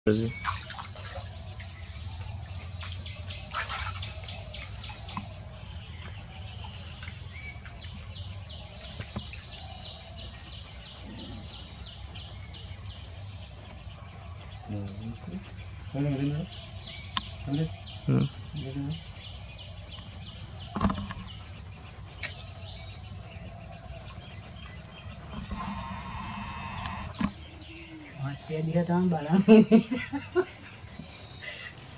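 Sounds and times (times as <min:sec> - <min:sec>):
insects droning: 0:00.1 - 0:31.9
rapid insect ticking: 0:00.3 - 0:31.9
short low calls: 0:25.3 - 0:28.1.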